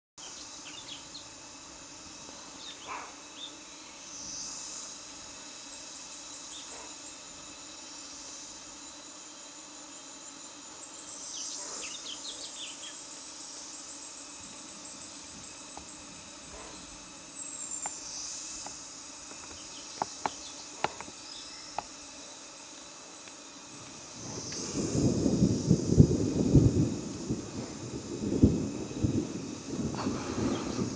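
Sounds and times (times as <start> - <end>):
fast pulsing insect trill: 0.2 - 30.9
insects trilling high-pitched: 0.2 - 30.9.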